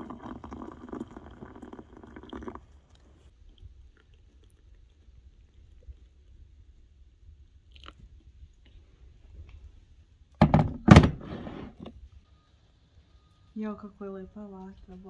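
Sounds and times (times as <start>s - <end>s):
loud thumps on a counter: 10.4s - 11.3s.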